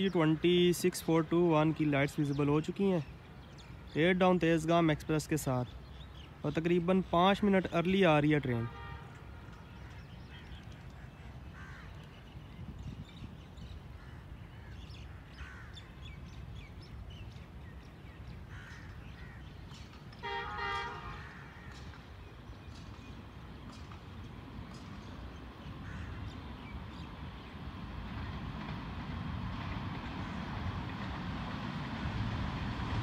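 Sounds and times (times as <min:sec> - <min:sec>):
bird calls: 0:09.4 - 0:31.2
horn sounding: 0:20.2 - 0:21.2.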